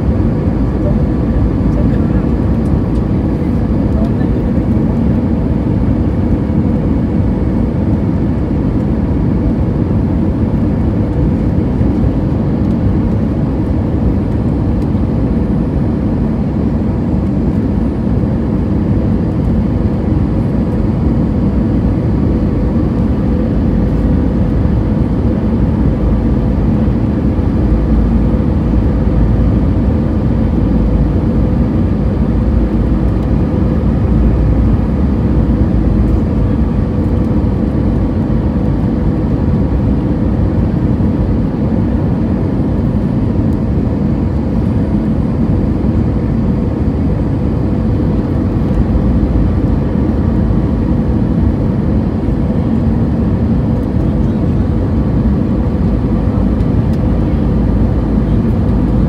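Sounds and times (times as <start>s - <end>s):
aircraft engine and airflow rush: 0.0s - 59.0s
steady cabin hum: 0.0s - 59.0s.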